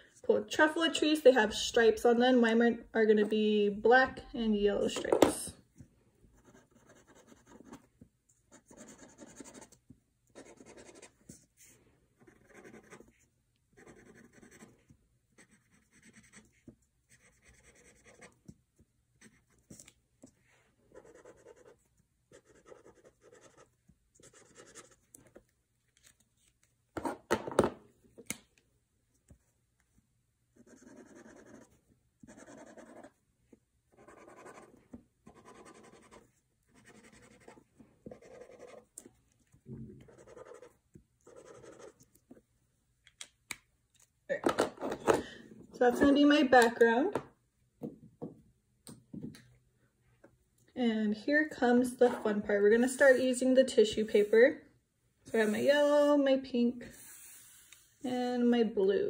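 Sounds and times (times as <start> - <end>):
markers scratching on paper: 6.4 - 7.9, 8.5 - 11.6, 12.2 - 18.5, 20.9 - 25.4, 30.6 - 33.2, 33.9 - 39.0, 40.0 - 42.1, 55.3 - 56.0.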